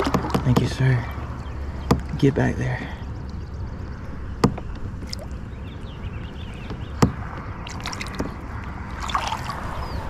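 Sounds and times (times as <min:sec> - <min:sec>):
sharp knock on kayak: 0:00.0 - 0:00.7
water sloshing and dripping: 0:00.0 - 0:02.2, 0:04.5 - 0:05.4, 0:06.6 - 0:10.0.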